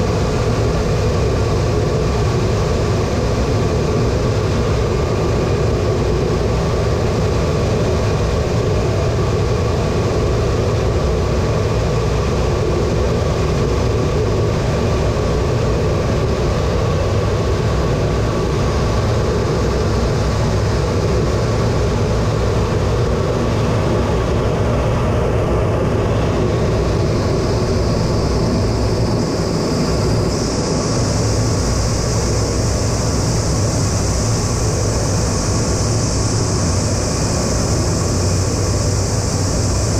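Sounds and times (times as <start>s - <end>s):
jet engine roar with whine: 0.0s - 39.9s
high hiss: 26.0s - 39.9s.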